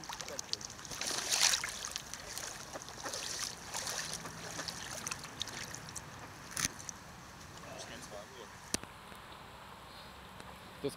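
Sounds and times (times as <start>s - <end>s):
fine trickling crackles: 0.0s - 6.1s
water lapping and sloshing: 0.0s - 7.0s.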